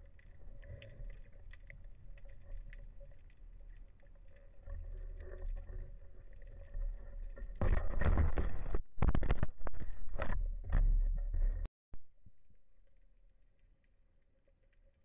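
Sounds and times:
water splashing and bubbling: 0:00.0 - 0:09.3
muffled underwater rumble: 0:00.0 - 0:15.0.

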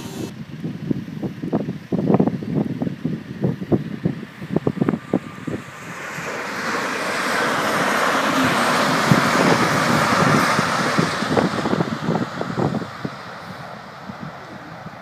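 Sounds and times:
diesel train passing at speed: 0:03.9 - 0:15.0.

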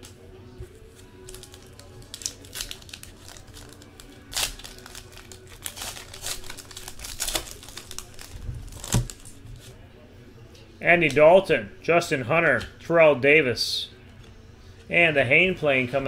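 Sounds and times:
faint background music: 0:00.0 - 0:16.0
foil wrapper crinkling and tearing: 0:00.9 - 0:09.4.

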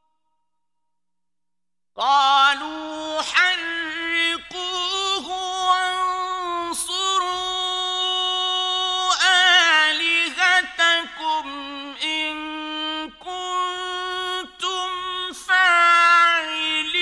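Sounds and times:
man chanting melodically: 0:02.0 - 0:17.0.

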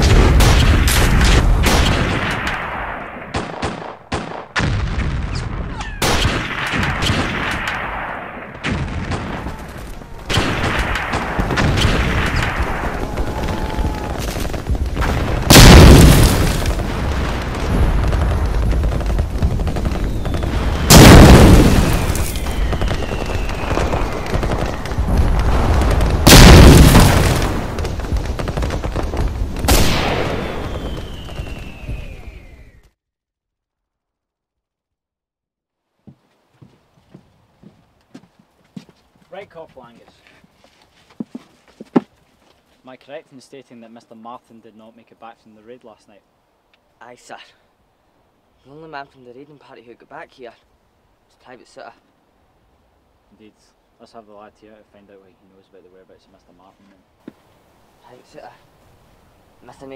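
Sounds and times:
heavy shell explosions: 0:00.0 - 0:09.7, 0:10.3 - 0:32.5
rifle and machine-gun fire: 0:10.3 - 0:31.6
falling whistles: 0:20.0 - 0:20.7, 0:21.9 - 0:24.8, 0:30.4 - 0:33.0.

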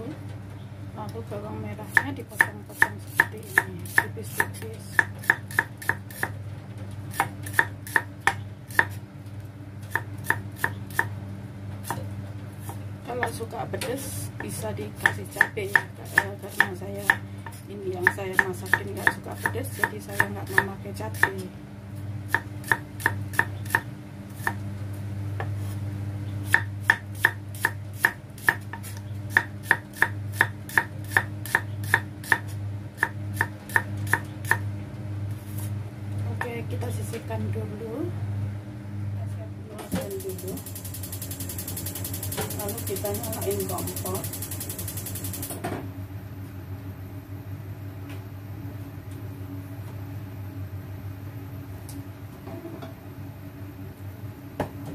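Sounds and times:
steady low hum: 0:00.0 - 0:54.9
cleaver knocking on chopping block: 0:14.4 - 0:17.2, 0:18.0 - 0:21.4.

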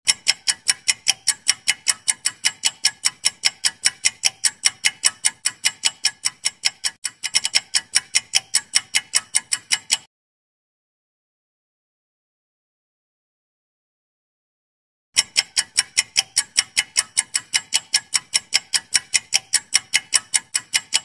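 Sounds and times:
rapid clock-like ticking: 0:00.0 - 0:10.1, 0:15.2 - 0:21.0.

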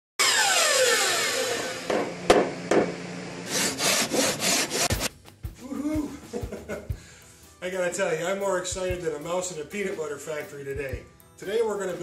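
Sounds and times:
saw cutting wood: 0:00.2 - 0:02.3, 0:03.4 - 0:05.1.

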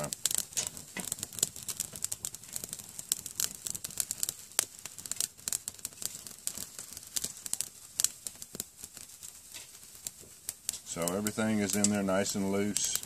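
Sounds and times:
twigs crackling in fire: 0:00.0 - 0:13.0.

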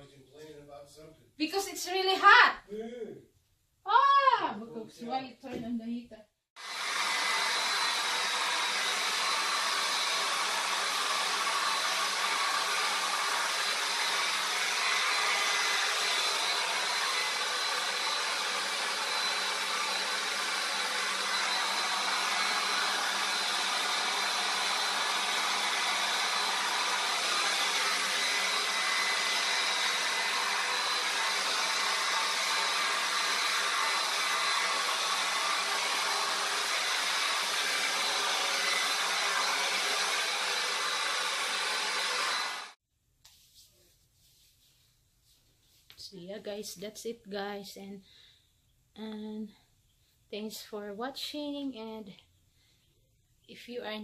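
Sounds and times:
hair dryer running: 0:06.6 - 0:42.8.

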